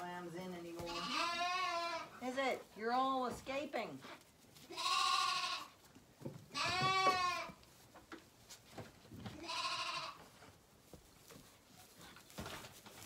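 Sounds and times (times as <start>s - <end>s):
lambs bleating: 0.8s - 2.2s, 4.7s - 5.8s, 6.5s - 7.6s, 9.4s - 10.3s.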